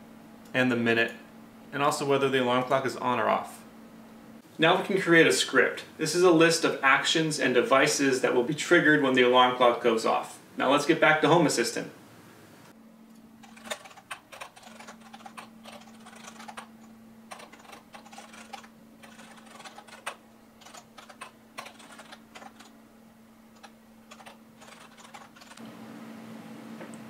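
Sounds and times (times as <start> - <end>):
faint steady hum: 0.0 - 27.0
laptop keyboard typing: 13.4 - 22.8, 23.5 - 25.6.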